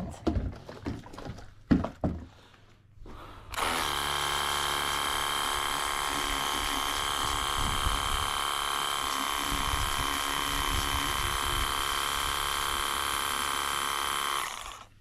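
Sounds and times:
pressure washer whining: 3.5s - 14.9s.

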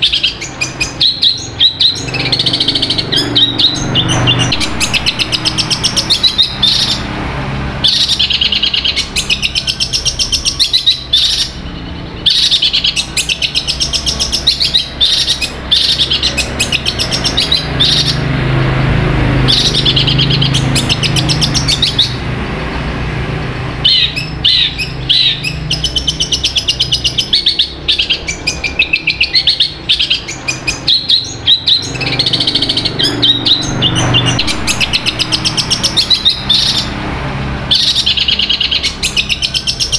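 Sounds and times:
bird chattering song: 0.0s - 7.2s, 7.8s - 18.8s, 19.4s - 22.8s, 23.8s - 37.1s, 37.7s - 39.9s.

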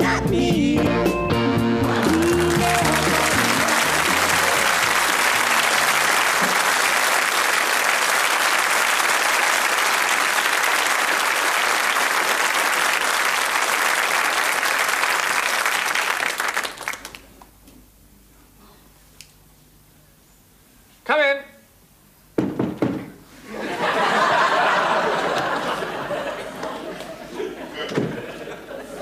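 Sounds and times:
song final notes: 0.8s - 6.2s
audience applauding: 1.8s - 17.5s, 23.9s - 27.4s.

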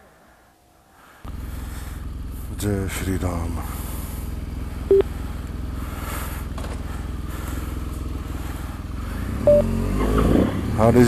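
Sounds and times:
motorcycle engine idling: 1.3s - 10.0s
short loud beep: 9.5s - 9.7s.

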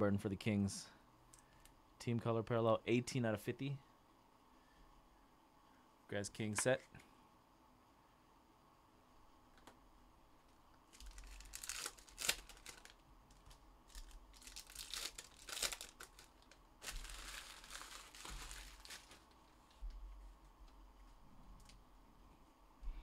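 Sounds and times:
wrapper ripping: 10.9s - 19.4s
wrappers crinkling: 10.9s - 19.8s.

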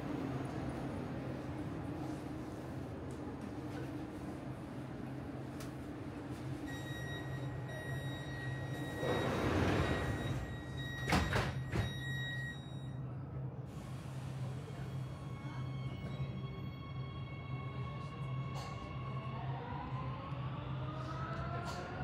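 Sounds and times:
metro car low hum: 0.0s - 22.0s
doors sliding shut with knocks: 8.9s - 10.4s, 11.0s - 12.0s.

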